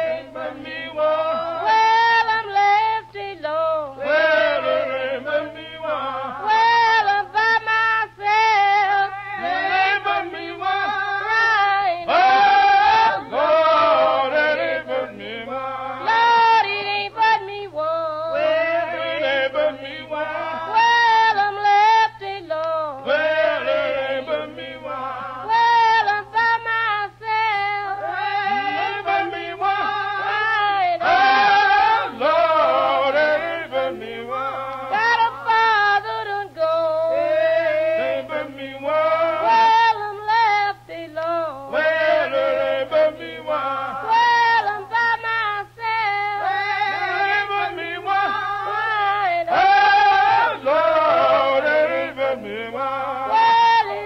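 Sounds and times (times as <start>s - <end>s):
choir singing long notes: 0.0s - 27.2s, 27.8s - 54.0s.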